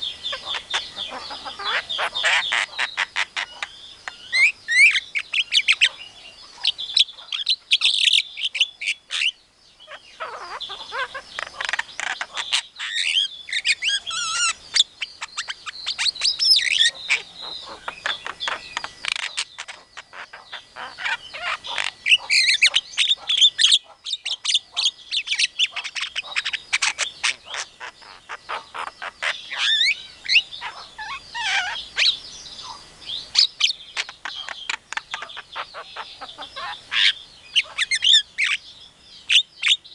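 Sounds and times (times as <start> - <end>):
myna calling: 0.0 - 38.6.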